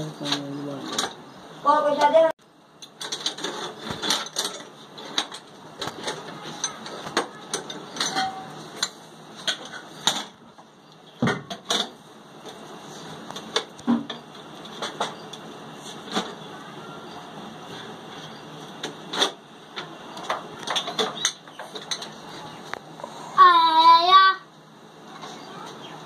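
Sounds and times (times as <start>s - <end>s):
sharp metallic clicks and knocks: 2.8s - 12.6s, 18.7s - 22.8s.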